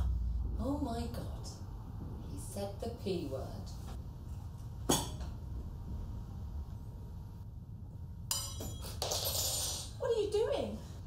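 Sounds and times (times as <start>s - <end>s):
low steady hum: 0.0s - 11.0s
tableware clinking: 4.9s - 5.4s, 8.3s - 10.0s.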